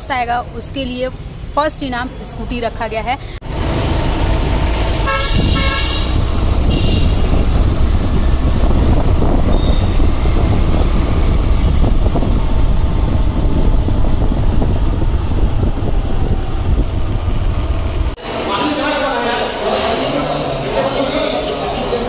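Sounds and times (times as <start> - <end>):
vehicle horn toot: 5.0 - 7.4
wind buffeting microphone: 5.1 - 18.2.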